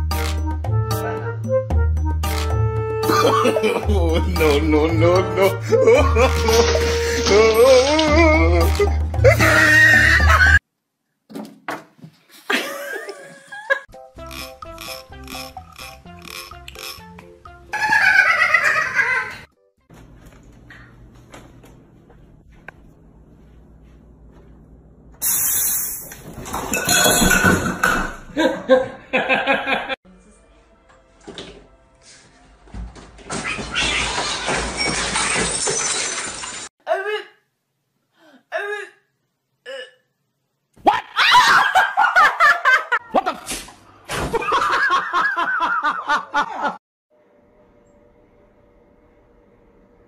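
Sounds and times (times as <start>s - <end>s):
hearty laughter: 3.1s - 4.4s, 17.8s - 19.4s, 28.4s - 30.0s, 44.4s - 46.8s.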